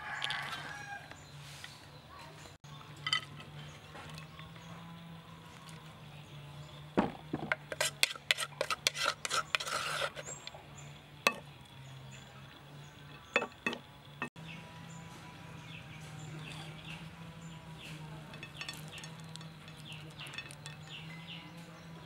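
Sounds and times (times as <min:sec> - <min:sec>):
spoon scraping clay mortar: 0:07.6 - 0:10.5, 0:17.9 - 0:21.2.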